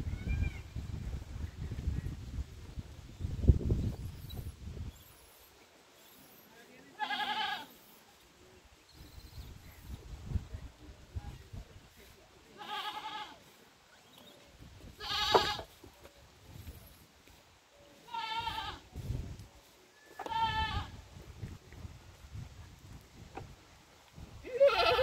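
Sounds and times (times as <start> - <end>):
animal bleating: 7.0 - 7.8, 12.6 - 13.4, 15.0 - 15.7, 18.1 - 18.8, 20.2 - 20.9, 24.4 - 25.0.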